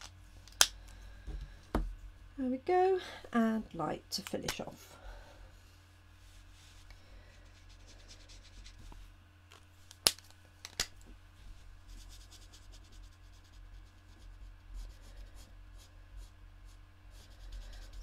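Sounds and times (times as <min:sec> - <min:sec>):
marker nib scratching on card: 0:17.1 - 0:18.0.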